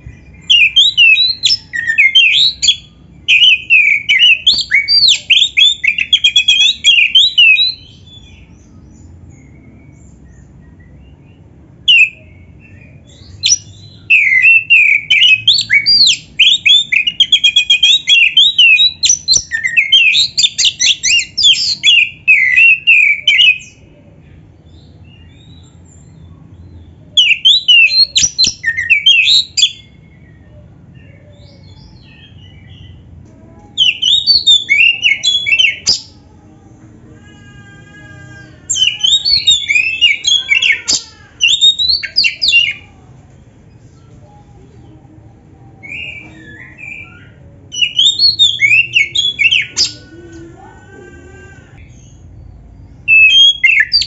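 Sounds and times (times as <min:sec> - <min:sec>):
bird singing whistled trills: 0:00.4 - 0:08.2, 0:33.8 - 0:36.2, 0:38.8 - 0:42.8, 0:45.8 - 0:50.0, 0:53.1 - 0:54.0.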